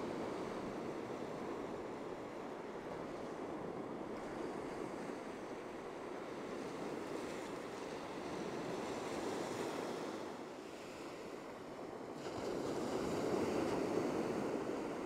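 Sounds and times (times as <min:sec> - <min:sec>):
waves breaking on a beach: 0:00.0 - 0:15.0.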